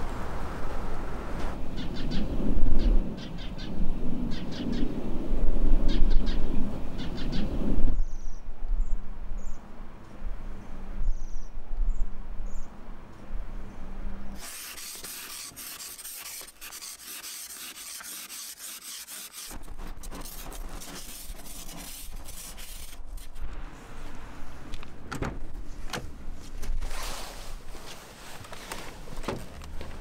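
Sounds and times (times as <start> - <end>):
ice scraper scraping windscreen: 14.4 - 23.5.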